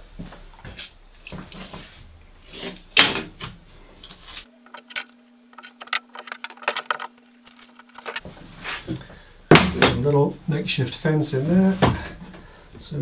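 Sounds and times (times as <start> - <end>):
faint steady hum: 0.0 - 13.0
tape handling and rustling: 4.0 - 9.0.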